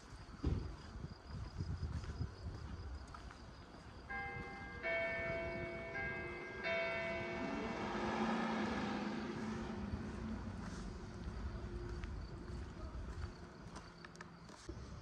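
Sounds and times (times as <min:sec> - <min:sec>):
church bells striking: 0:04.1 - 0:10.3.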